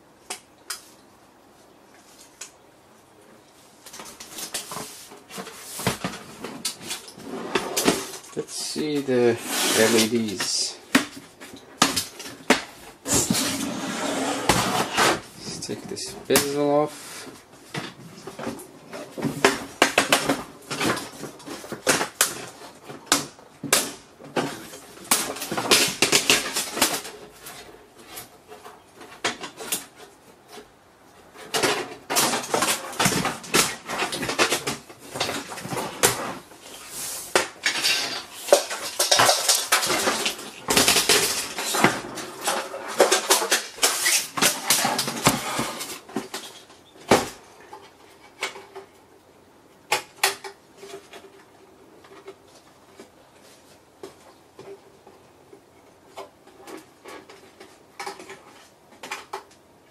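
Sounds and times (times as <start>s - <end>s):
plastic and metal parts clattering: 3.9s - 49.1s, 49.8s - 53.2s, 56.0s - 59.9s.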